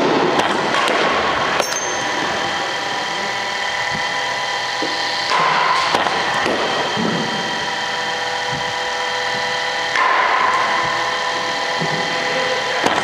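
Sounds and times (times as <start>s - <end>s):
bowling machine motors whining: 0.0s - 13.0s
bat striking ball: 0.1s - 1.9s, 4.9s - 7.2s, 9.9s - 11.0s.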